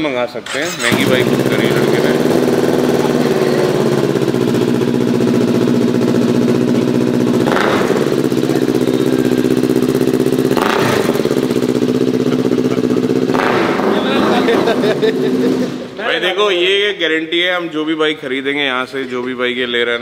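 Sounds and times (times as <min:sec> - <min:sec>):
motorcycle engine idling: 0:00.7 - 0:15.8.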